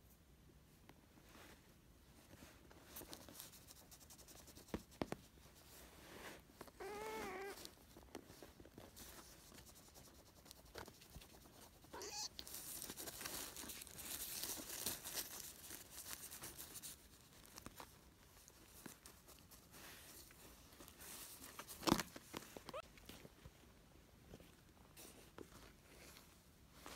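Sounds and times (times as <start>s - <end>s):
kitten mewing: 6.8s - 7.6s, 12.0s - 12.4s.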